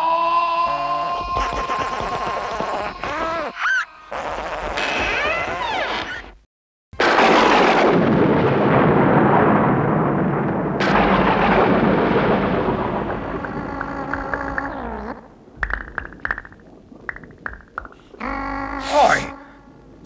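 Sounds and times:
thunder rumbling: 7.0s - 20.0s.

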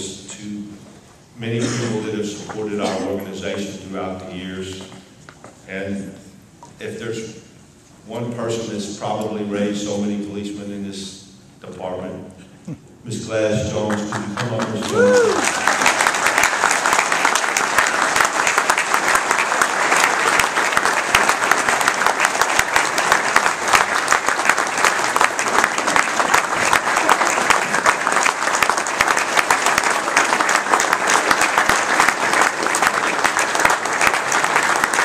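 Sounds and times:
crowd applauding: 13.9s - 35.0s.

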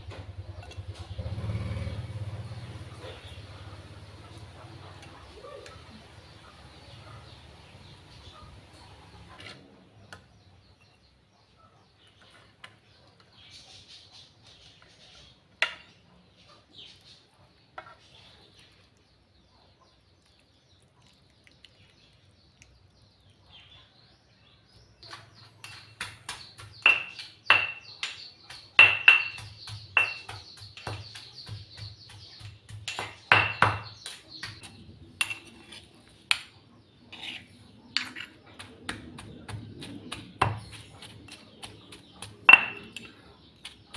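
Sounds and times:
stone pestle pounding in mortar: 25.6s - 35.5s, 38.0s - 43.9s.

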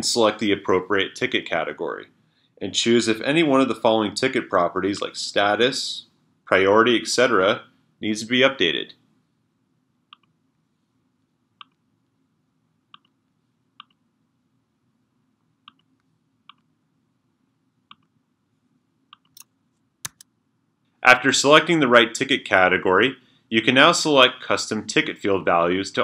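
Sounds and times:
computer mouse clicks: 10.1s - 10.4s, 12.9s - 13.2s, 13.8s - 14.0s, 15.7s - 16.7s, 17.9s - 18.1s, 19.1s - 20.3s.

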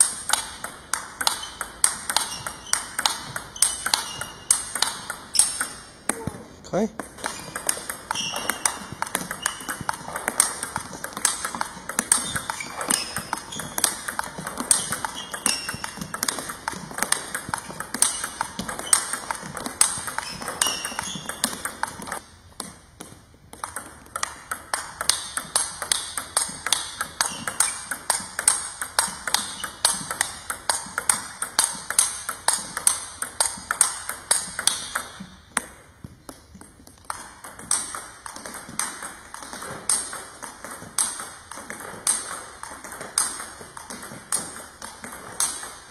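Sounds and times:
table tennis ball rally: 0.0s - 45.9s.

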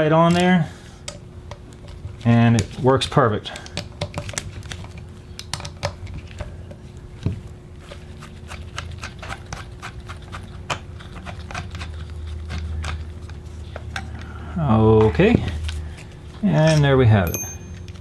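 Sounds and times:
faint steady hum: 0.0s - 18.0s
clicks and taps of parts: 5.4s - 6.5s.

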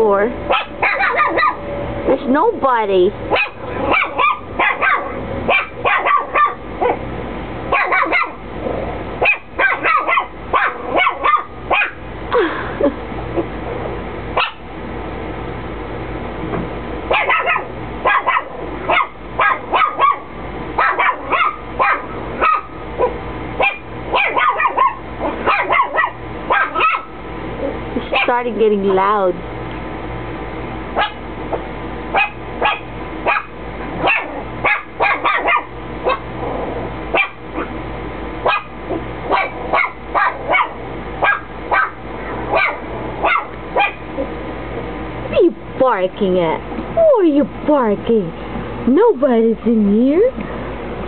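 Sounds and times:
small dog barking: 0.5s - 1.6s, 3.3s - 7.0s, 7.7s - 8.4s, 9.2s - 12.0s, 14.4s - 14.7s, 17.1s - 28.4s, 31.0s - 31.2s, 32.1s - 36.3s, 37.1s - 37.8s, 38.4s - 44.3s.

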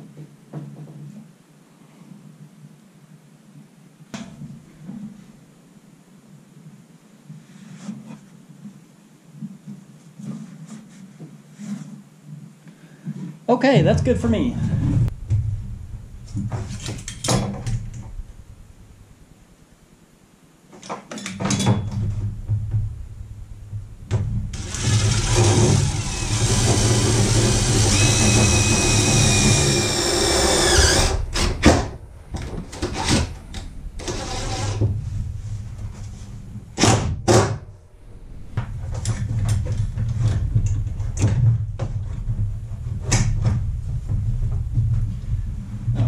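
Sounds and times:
low rumble: 13.8s - 20.4s, 22.0s - 46.0s
cordless drill motor whining: 24.6s - 31.6s.

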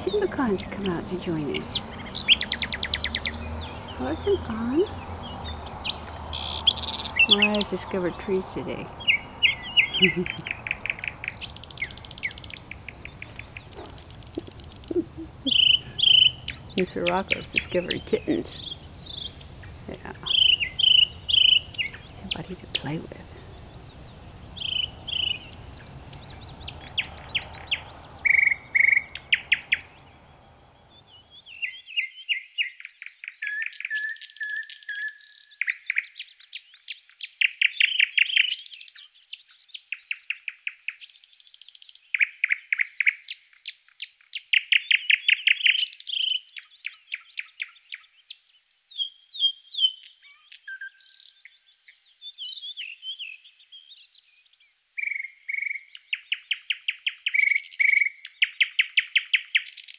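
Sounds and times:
faint low background noise: 0.0s - 32.1s
songbirds trilling and chirping: 0.0s - 59.9s.

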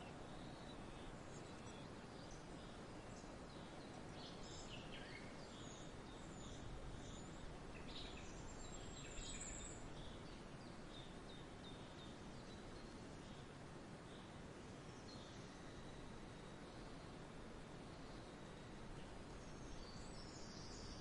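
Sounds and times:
small birds chirping: 0.0s - 13.5s, 17.8s - 21.0s
low background noise: 0.0s - 21.0s.

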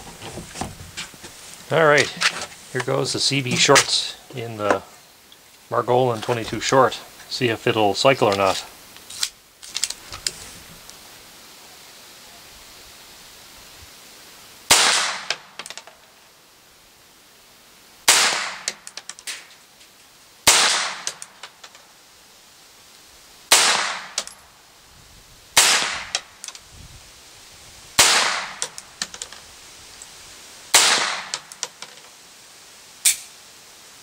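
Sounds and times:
pistol shots: 14.7s - 15.4s, 18.1s - 18.7s, 20.5s - 21.2s, 23.5s - 24.2s, 25.6s - 26.2s, 28.0s - 28.6s, 30.7s - 31.5s
pistol action clicking: 33.0s - 33.3s.

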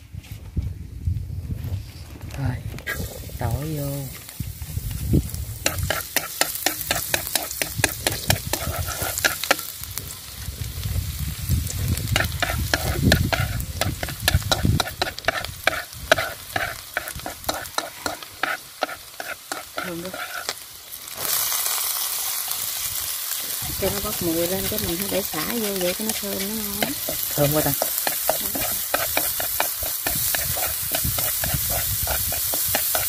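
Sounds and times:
garlic sizzling in hot oil: 2.8s - 33.0s
chopsticks scraping a wok: 5.6s - 10.5s, 12.1s - 20.6s, 23.4s - 33.0s.

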